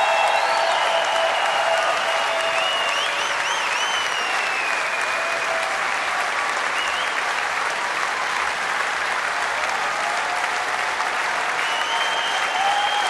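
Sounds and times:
crowd whistling: 0.0s - 5.8s, 6.7s - 7.3s, 11.5s - 13.0s
audience applauding: 0.0s - 13.0s.

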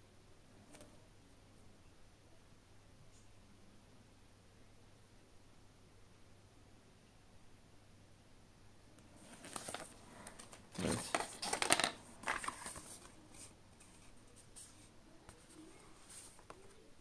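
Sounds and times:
paper and cardboard rustling: 9.2s - 16.8s.

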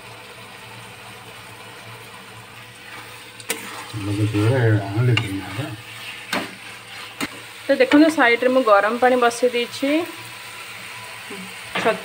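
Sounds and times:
low kitchen hum: 0.0s - 12.0s
person speaking: 4.0s - 5.8s.

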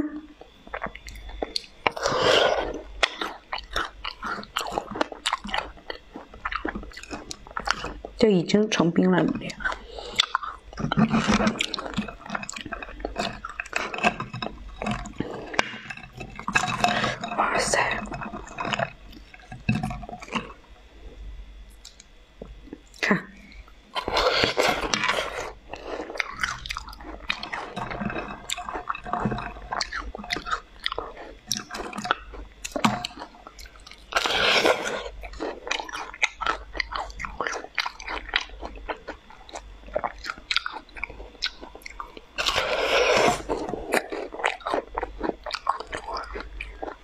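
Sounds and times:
chewing with small cracks: 0.3s - 47.0s.

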